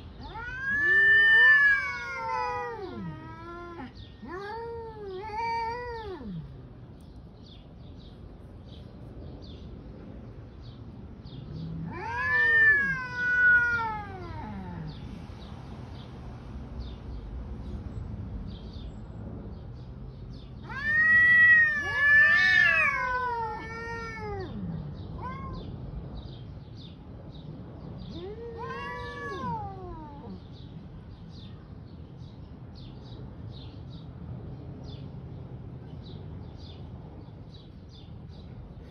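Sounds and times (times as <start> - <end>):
cats caterwauling: 0.1 - 6.6, 11.6 - 15.1, 20.6 - 25.8, 28.0 - 30.6.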